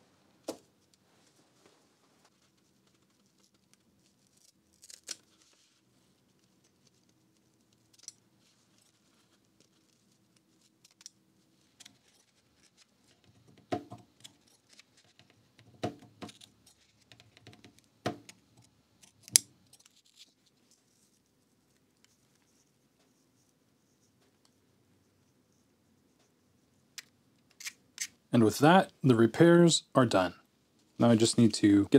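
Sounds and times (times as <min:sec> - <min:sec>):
paper rustling: 0:01.2 - 0:11.0.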